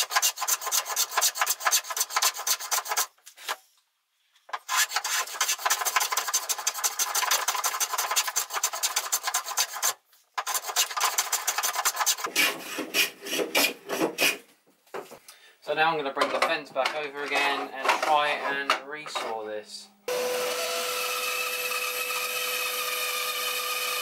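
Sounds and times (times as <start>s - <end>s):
hand plane scraping wood: 0.0s - 3.6s, 4.5s - 14.5s.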